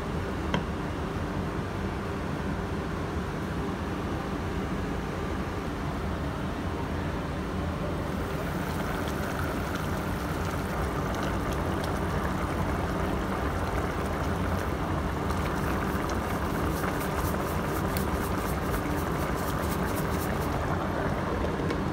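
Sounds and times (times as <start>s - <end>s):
broth boiling in a pot: 7.4s - 21.9s
electric cooker hum: 7.4s - 21.9s.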